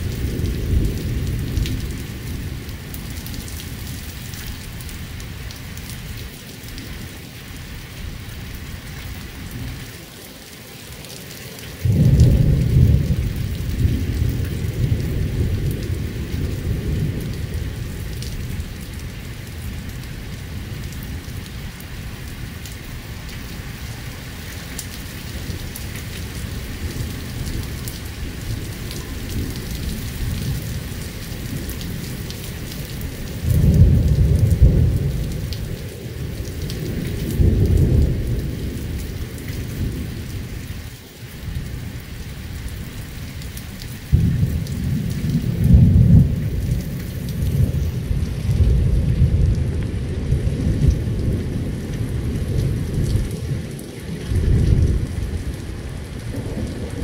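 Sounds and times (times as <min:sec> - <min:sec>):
light rain falling: 0:00.0 - 0:57.0
distant thunder rumbling: 0:11.8 - 0:19.0, 0:44.0 - 0:57.0.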